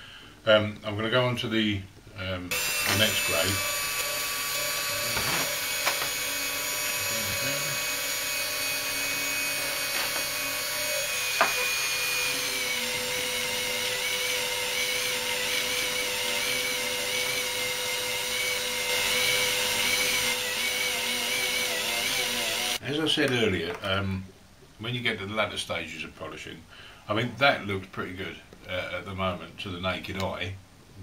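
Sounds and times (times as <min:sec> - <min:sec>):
rotary tool whining: 0:02.5 - 0:22.8.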